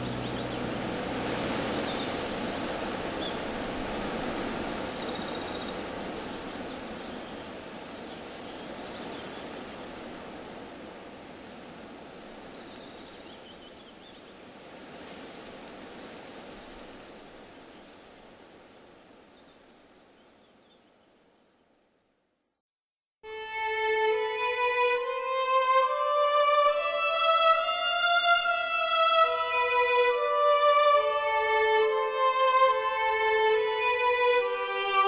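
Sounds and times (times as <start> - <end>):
steady rushing hiss: 0.0 - 20.5
small birds chirping: 1.5 - 10.0, 11.1 - 14.7.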